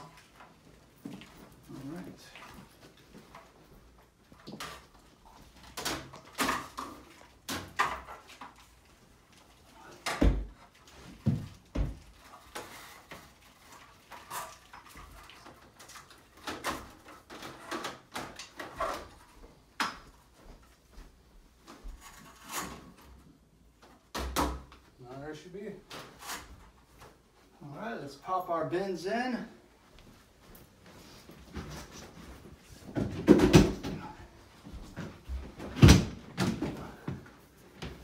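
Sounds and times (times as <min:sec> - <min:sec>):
panels knocking and clattering: 0:32.7 - 0:38.0.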